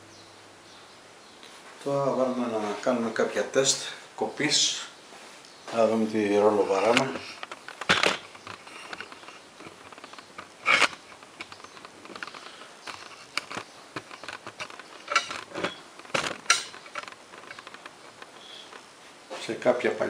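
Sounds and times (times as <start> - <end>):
metal parts clanking and knocking: 14.5 - 17.8.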